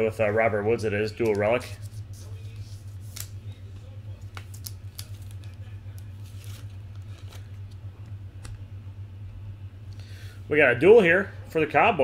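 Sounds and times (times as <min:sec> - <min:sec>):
steady low hum: 0:00.0 - 0:12.0
cards and plastic sleeves rustling: 0:01.1 - 0:07.9.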